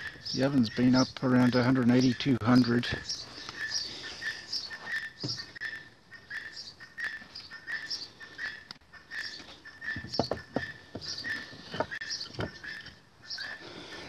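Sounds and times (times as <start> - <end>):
firebricks knocking: 10.0 - 12.9.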